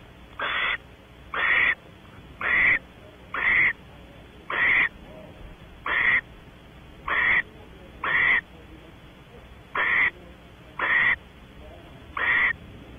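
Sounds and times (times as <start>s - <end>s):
owl rasping hissing calls: 0.4s - 1.8s, 2.4s - 3.8s, 4.5s - 4.9s, 5.8s - 6.3s, 7.1s - 8.5s, 9.7s - 10.2s, 10.8s - 11.2s, 12.2s - 12.6s.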